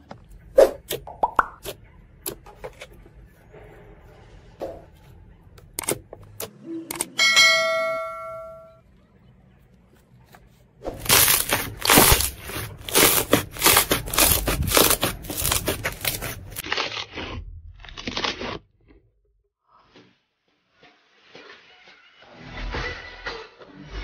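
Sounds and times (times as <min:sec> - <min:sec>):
bell-like ding: 0:07.2 - 0:08.8.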